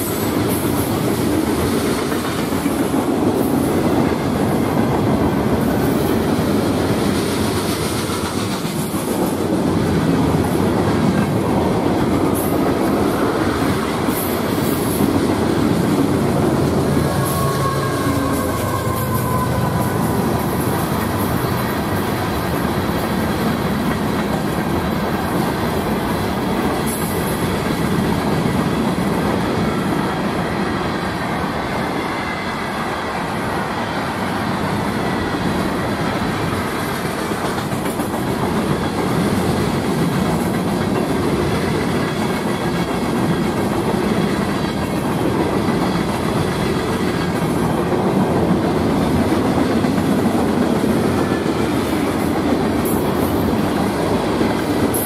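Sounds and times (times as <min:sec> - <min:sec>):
steel wheels rumbling on rail: 0:00.0 - 0:55.0
clacking over rail joints: 0:06.8 - 0:17.5, 0:36.2 - 0:55.0.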